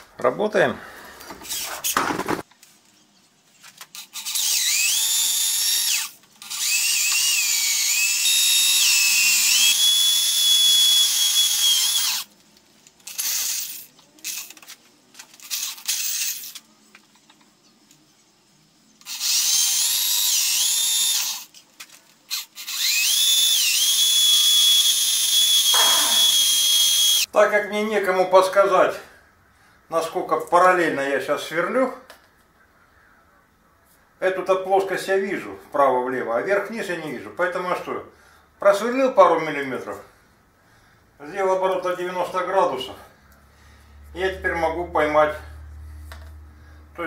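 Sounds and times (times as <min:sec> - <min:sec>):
electric drill boring metal: 0:04.0 - 0:12.3, 0:13.1 - 0:14.5, 0:15.4 - 0:16.6, 0:19.0 - 0:21.6, 0:22.3 - 0:27.3.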